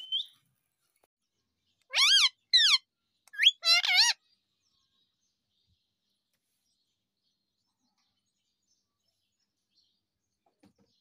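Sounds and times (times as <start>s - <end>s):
parrot calling: 1.9s - 4.2s.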